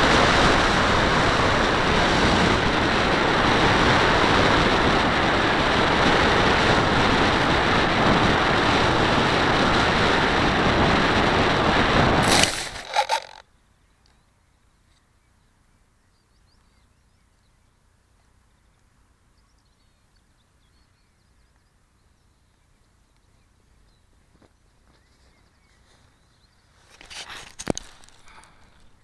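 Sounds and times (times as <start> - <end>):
wind rushing over camera: 0.0 - 13.4
plane bumping on grass: 12.2 - 13.4, 26.8 - 29.0
faint bird chirps: 13.4 - 27.0.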